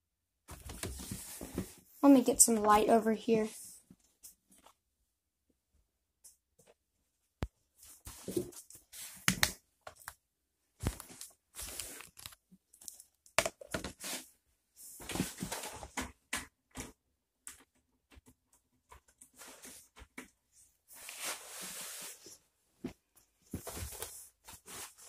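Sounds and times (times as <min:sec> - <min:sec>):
rustles and scrapes on tabletop: 0:00.7 - 0:01.8, 0:19.2 - 0:22.5, 0:23.2 - 0:25.0.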